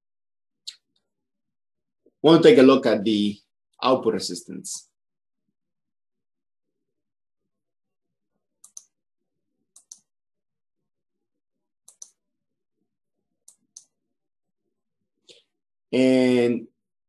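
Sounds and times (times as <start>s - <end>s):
computer mouse clicks: 8.6s - 9.0s, 9.7s - 10.1s, 11.9s - 12.2s, 13.4s - 14.0s.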